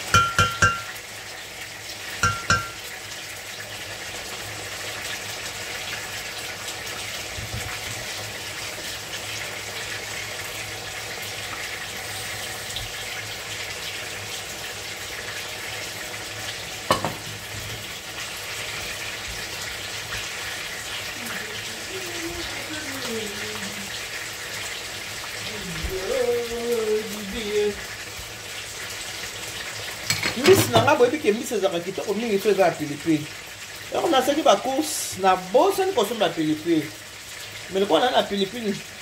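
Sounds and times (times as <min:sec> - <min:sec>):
wooden spoon knocking pot: 0:00.0 - 0:01.0, 0:02.2 - 0:02.8, 0:16.9 - 0:17.3
stew sizzling in a pot: 0:00.0 - 0:39.0.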